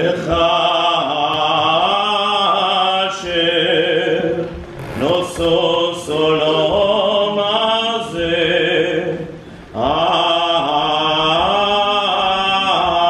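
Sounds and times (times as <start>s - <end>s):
boys' choir singing: 0.0s - 13.0s.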